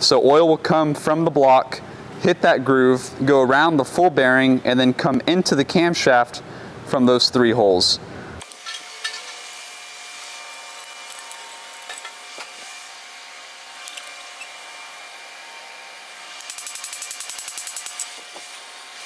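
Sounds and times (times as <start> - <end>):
steady shop hum: 0.0 - 19.0
metal clinks and clicks: 10.6 - 12.1, 16.4 - 18.2.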